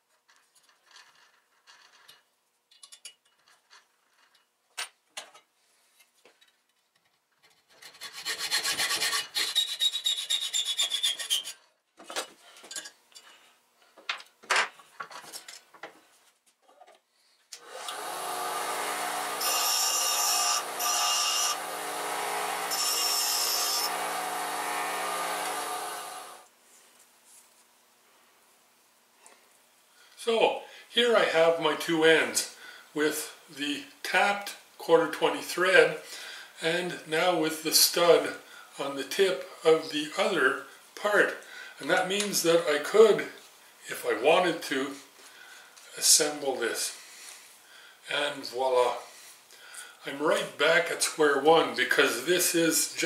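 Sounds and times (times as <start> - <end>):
hacksaw cutting metal: 7.8 - 11.6, 17.7 - 26.4
bench grinder running: 17.7 - 26.4.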